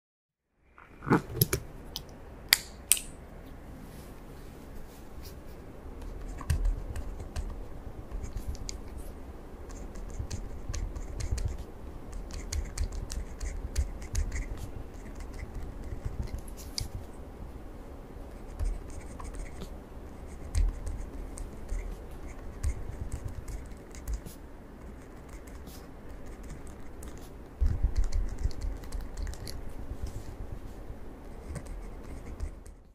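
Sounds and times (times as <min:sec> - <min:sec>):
pencil writing on paper: 0:09.7 - 0:17.0, 0:18.3 - 0:29.6, 0:31.3 - 0:32.9
rustling and scratching: 0:18.4 - 0:32.9.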